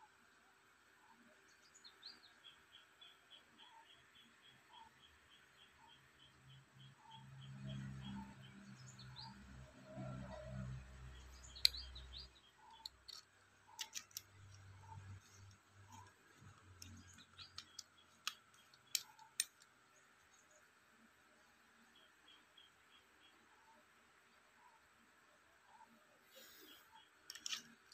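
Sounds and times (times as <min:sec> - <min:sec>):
sharp metallic clicks and taps: 0:11.2 - 0:19.8, 0:27.3 - 0:27.9.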